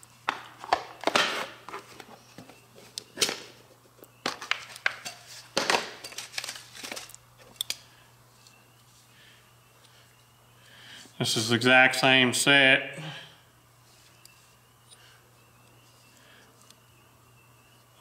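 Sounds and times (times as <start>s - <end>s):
paper crinkling: 4.4s - 7.2s.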